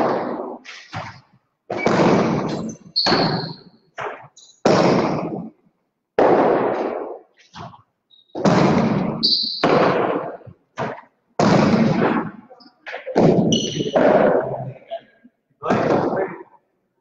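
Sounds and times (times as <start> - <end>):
short high squeaks: 2.5 - 3.7, 9.2 - 9.6.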